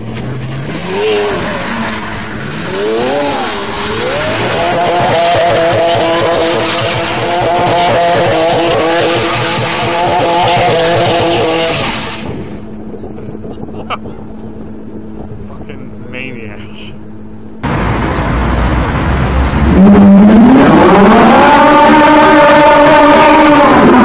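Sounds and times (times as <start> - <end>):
car engine revving: 0.0 - 12.9, 17.3 - 24.0.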